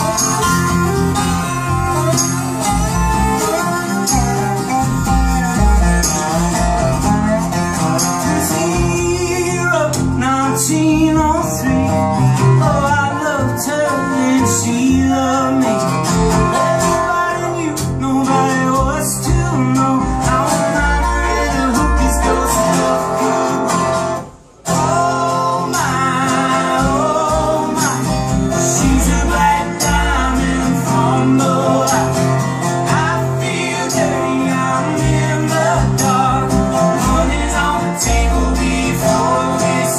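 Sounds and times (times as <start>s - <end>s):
fiddle: 0.0s - 8.1s
strummed acoustic guitars: 0.0s - 39.9s
upright bass: 0.0s - 39.9s
person singing: 16.9s - 23.8s.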